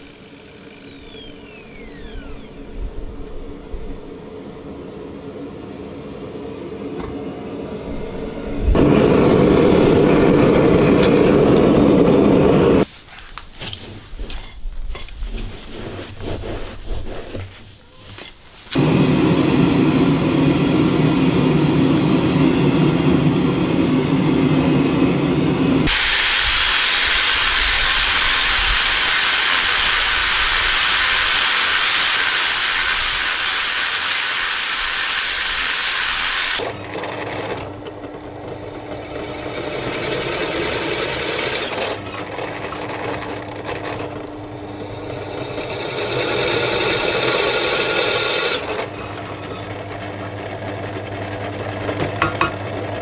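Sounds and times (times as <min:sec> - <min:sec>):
drill press drilling steel: 0:00.0 - 0:02.7, 0:25.9 - 0:49.8
low rushing noise: 0:07.4 - 0:12.8
wire wheel grinder brushing steel: 0:38.0 - 0:41.8, 0:44.6 - 0:48.8.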